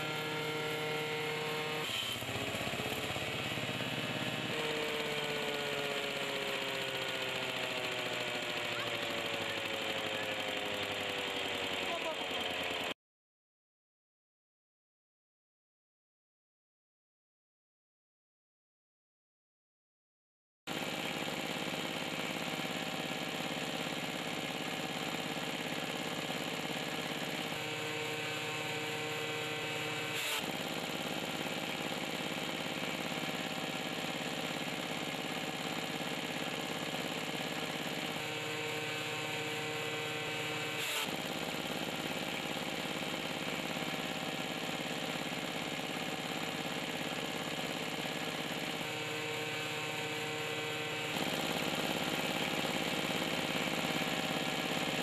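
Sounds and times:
chaff cutter chopping grass: 0:00.0 - 0:13.0, 0:20.7 - 0:55.0
power tiller engine running: 0:00.0 - 0:13.0, 0:20.7 - 0:55.0.

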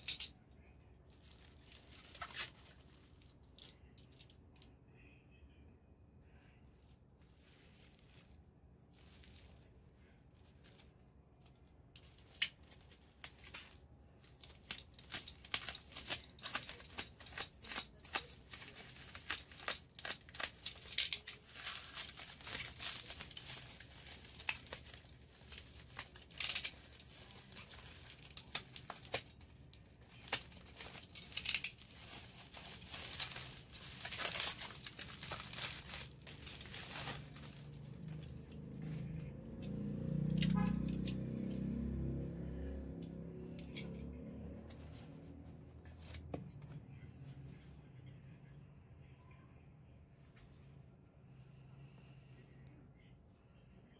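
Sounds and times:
bubble wrap crinkling and tearing: 0:01.1 - 0:03.9, 0:06.8 - 0:11.1, 0:12.0 - 0:40.3.

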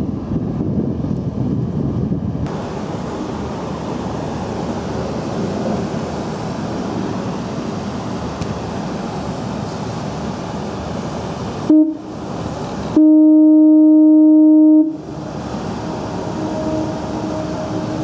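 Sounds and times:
wind rushing: 0:00.0 - 0:12.9
ship engine noise: 0:00.0 - 0:18.0
ship's horn blast: 0:11.6 - 0:12.2, 0:12.9 - 0:18.0.

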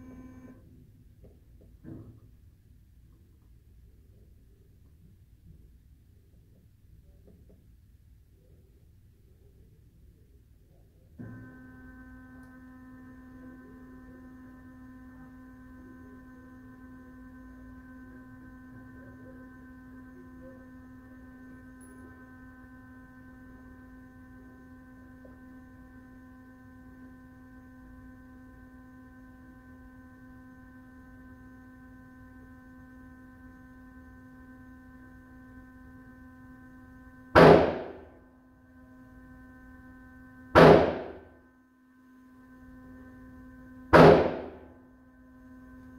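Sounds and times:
pitched electrical hum: 0:00.0 - 0:45.9
gunshot echoing indoors: 0:37.4 - 0:37.8, 0:40.6 - 0:41.2, 0:44.0 - 0:44.5.

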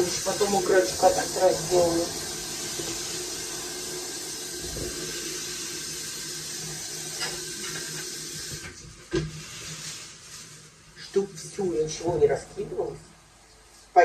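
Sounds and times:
tap running into steel sink: 0:07.1 - 0:09.4.

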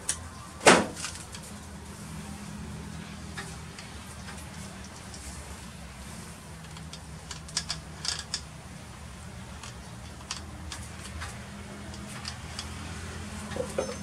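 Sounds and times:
handling clicks and taps: 0:09.6 - 0:12.8.

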